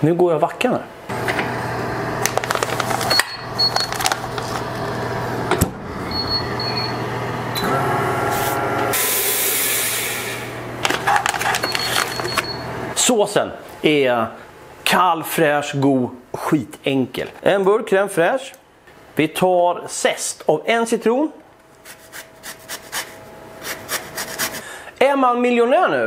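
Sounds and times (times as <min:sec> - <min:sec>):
vacuum pump humming: 0:01.1 - 0:13.0
air hissing into chamber: 0:08.9 - 0:10.6.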